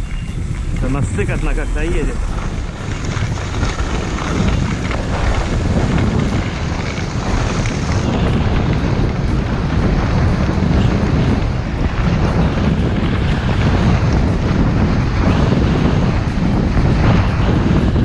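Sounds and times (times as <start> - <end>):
wind buffeting microphone: 0.0 - 18.0.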